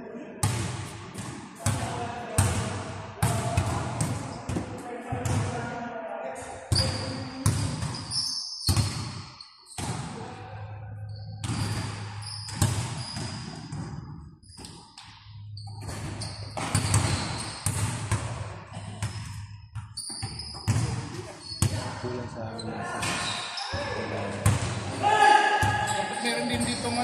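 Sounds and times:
sneakers squeaking on floor: 0:06.7 - 0:10.2, 0:11.1 - 0:24.7, 0:25.6 - 0:27.0
basketball bouncing on court: 0:11.4 - 0:14.0, 0:15.8 - 0:21.8, 0:24.4 - 0:24.8.

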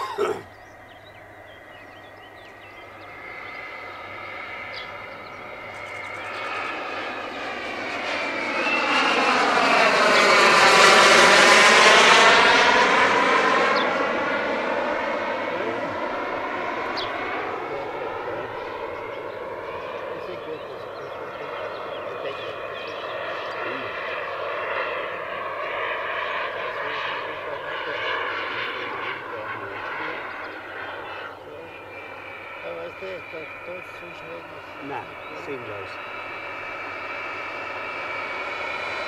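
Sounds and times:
model jet turbine flyby: 0:02.8 - 0:39.0.

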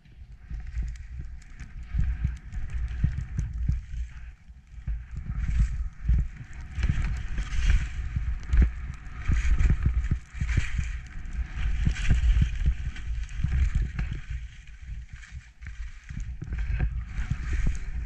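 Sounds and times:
low wind rumble: 0:00.0 - 0:18.0
skis swishing through snow: 0:04.9 - 0:18.0.

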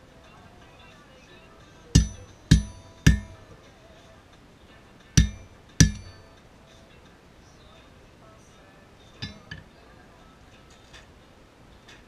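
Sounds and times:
hammer striking steel anvil: 0:02.0 - 0:03.5, 0:05.2 - 0:06.3, 0:09.2 - 0:09.6.

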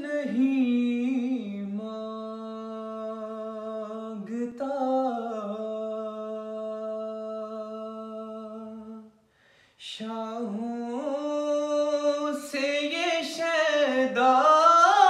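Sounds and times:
man singing unaccompanied: 0:00.0 - 0:09.1, 0:09.8 - 0:15.0
quick breath: 0:09.2 - 0:09.8.

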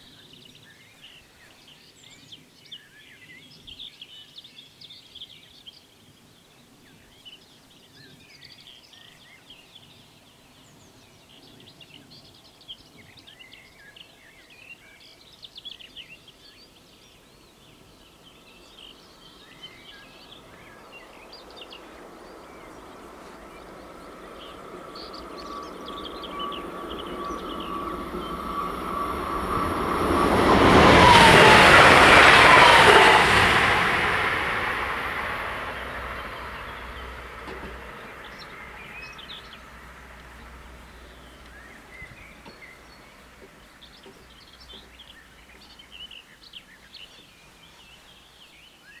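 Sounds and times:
bird chirps: 0:18.0 - 0:49.0
train running on rails: 0:19.4 - 0:46.0
train whine: 0:19.4 - 0:46.2.

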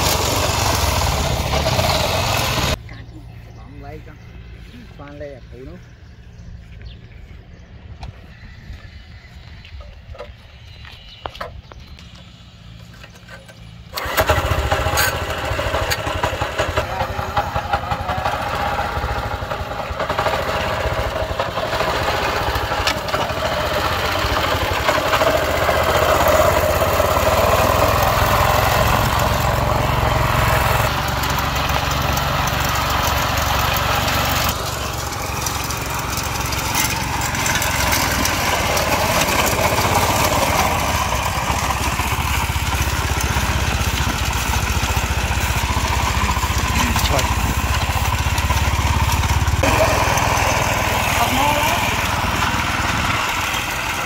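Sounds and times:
harvester engine running: 0:00.0 - 0:05.6, 0:06.3 - 0:54.0.

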